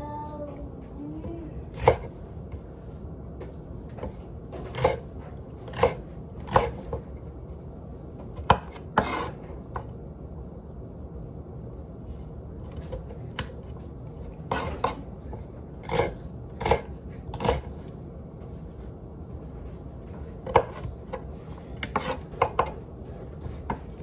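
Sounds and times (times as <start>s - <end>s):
knife chopping celery: 1.7s - 2.1s, 3.9s - 7.1s, 8.2s - 9.9s, 12.6s - 17.8s, 20.0s - 24.0s.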